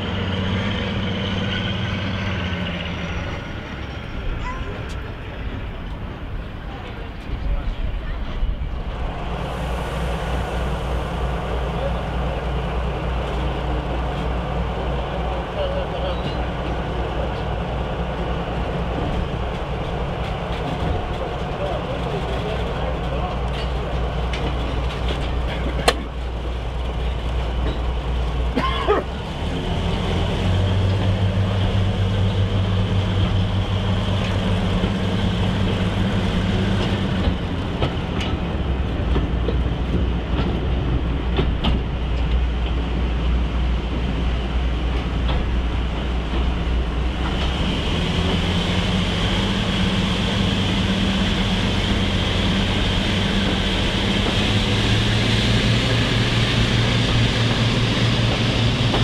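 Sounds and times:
diesel locomotive engines working hard: 0.0s - 59.0s
wheels clicking on track: 12.8s - 59.0s.

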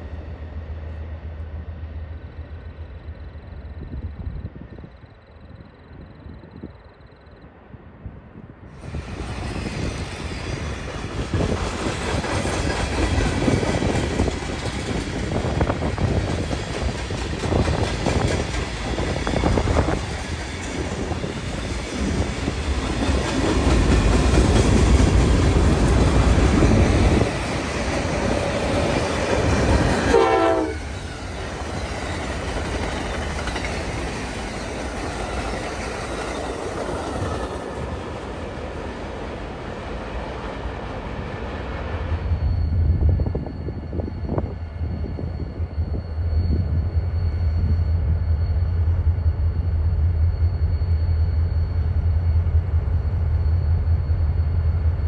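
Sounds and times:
train wheels clattering: 9.2s - 38.1s
train horn: 29.8s - 31.0s.

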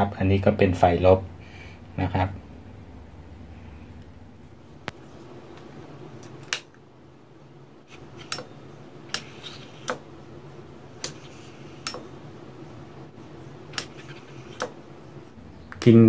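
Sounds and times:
low steady hum: 0.0s - 16.0s
relay clicking: 8.1s - 8.5s, 13.7s - 14.8s.

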